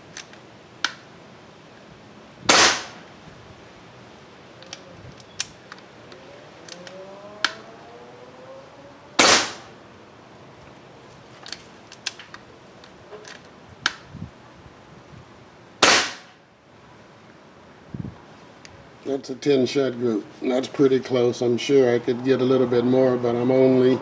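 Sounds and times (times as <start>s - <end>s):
air rifle shots: 2.5s - 3.1s, 9.2s - 9.8s, 15.8s - 16.4s.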